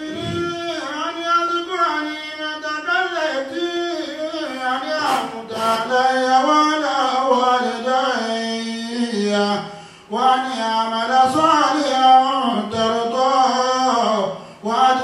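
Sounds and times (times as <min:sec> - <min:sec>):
man chanting: 0:00.0 - 0:15.0.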